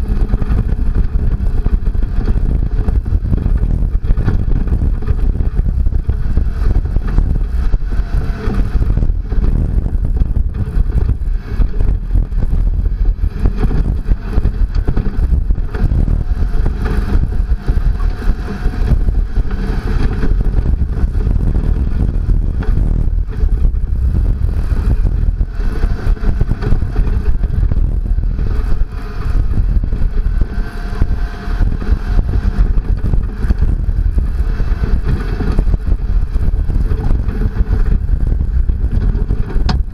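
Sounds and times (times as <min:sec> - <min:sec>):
truck engine under load: 0:00.0 - 0:39.9
wind buffeting microphone: 0:00.0 - 0:39.9.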